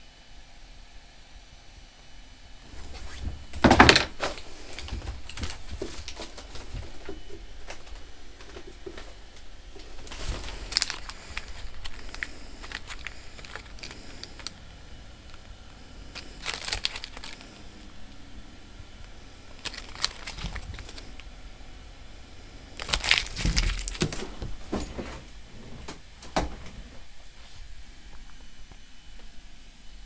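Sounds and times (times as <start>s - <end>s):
paper rustling and crinkling: 2.7s - 18.3s, 19.5s - 21.3s, 22.8s - 25.8s.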